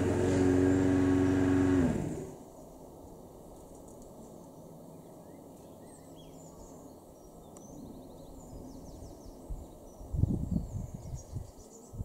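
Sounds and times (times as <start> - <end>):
small birds chirping: 4.3 - 12.0.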